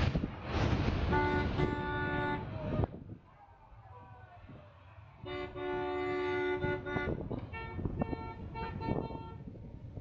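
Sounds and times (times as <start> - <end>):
car horn honking: 1.1 - 2.6, 5.2 - 9.4.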